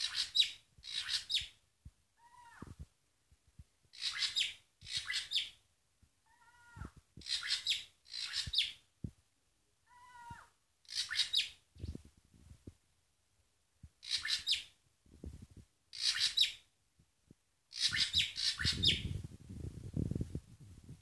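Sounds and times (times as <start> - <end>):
bird harsh scratchy calls: 0.0 - 1.5, 4.0 - 5.4, 6.4 - 8.7, 10.9 - 11.6, 14.0 - 14.7, 16.0 - 16.6, 17.7 - 19.1
low thuds of movement: 18.6 - 21.0.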